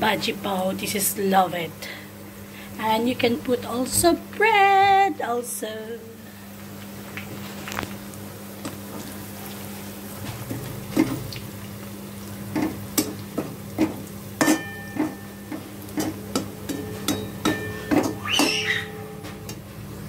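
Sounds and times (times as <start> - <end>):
onions frying in a wok: 0.0 - 20.0
spatula clinking on pan: 13.8 - 19.3
metal spatula scraping a wok: 14.4 - 15.2.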